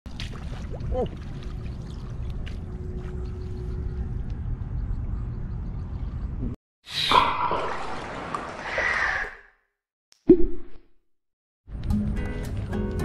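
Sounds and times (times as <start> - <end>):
muddy water sloshing: 0.1 - 3.8, 7.6 - 8.7.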